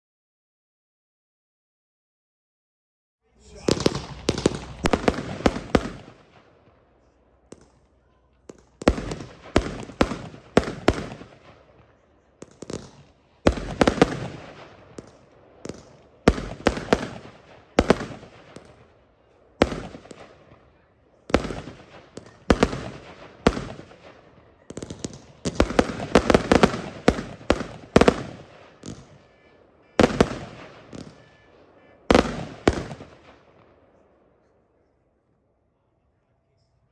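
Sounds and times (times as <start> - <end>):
fireworks cake firing bangs: 3.4 - 6.8, 7.4 - 19.0, 19.6 - 33.7.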